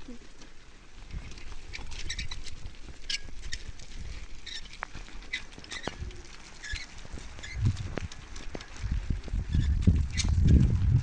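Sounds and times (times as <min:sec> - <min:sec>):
stone roller rumbling over mud: 0:00.0 - 0:11.0
short high squeaks: 0:06.6 - 0:07.8.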